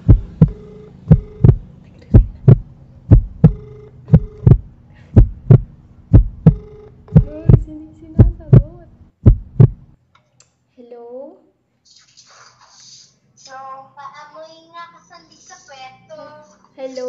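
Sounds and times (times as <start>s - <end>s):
faint steady tone: 0.0s - 5.6s
phone ringback double pulses: 0.0s - 8.7s.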